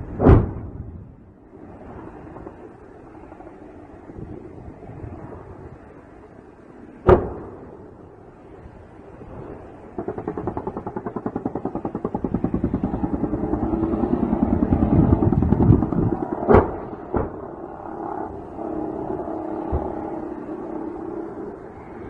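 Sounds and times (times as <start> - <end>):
sharp bangs: 9.8 - 18.6
automatic gunfire: 10.0 - 17.2.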